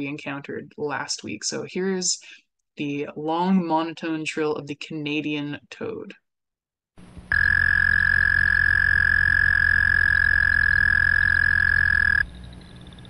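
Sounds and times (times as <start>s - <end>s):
toad trill: 7.3s - 13.0s.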